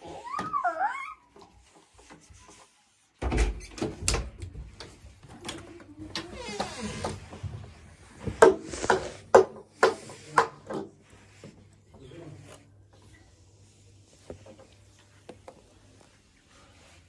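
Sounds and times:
phone rubbing on carpet: 0:08.2 - 0:09.3.

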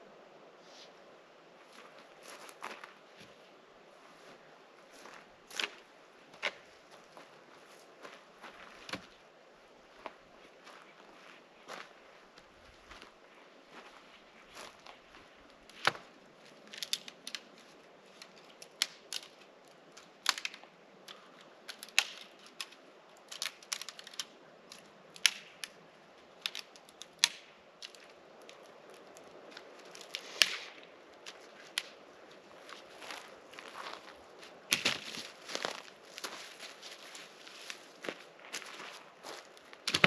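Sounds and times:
sticks snapping: 0:16.6 - 0:32.0, 0:34.7 - 0:35.9.

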